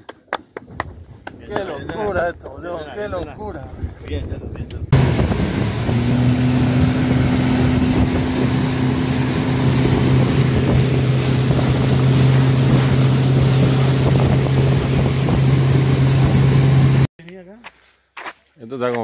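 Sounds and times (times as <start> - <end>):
wind buffeting microphone: 0.5 - 17.1
boat wake rushing: 4.9 - 17.1
outboard motor drone: 4.9 - 17.1.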